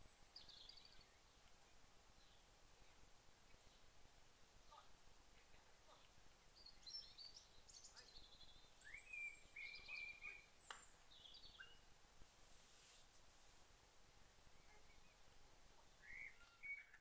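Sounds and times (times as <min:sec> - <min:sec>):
bird chirping and whistling: 0:08.9 - 0:10.5, 0:16.0 - 0:17.0.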